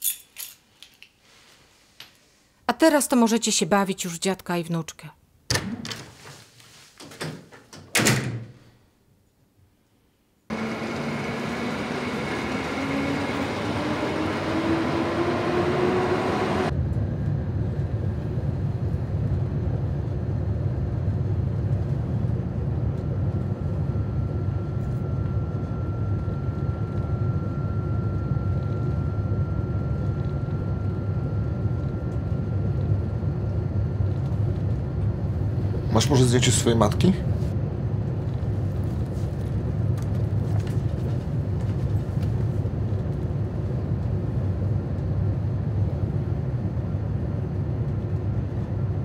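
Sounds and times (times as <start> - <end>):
whine rising in pitch: 10.5 - 49.0.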